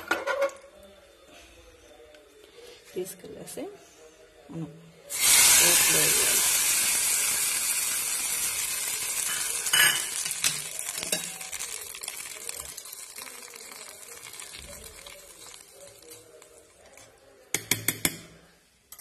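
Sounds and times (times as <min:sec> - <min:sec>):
hot oil sizzling: 0:05.1 - 0:16.8.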